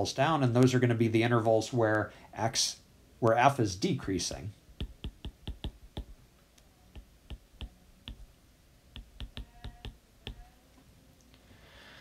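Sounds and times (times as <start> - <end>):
stylus tapping on glass screen: 4.8 - 6.2, 6.9 - 10.5.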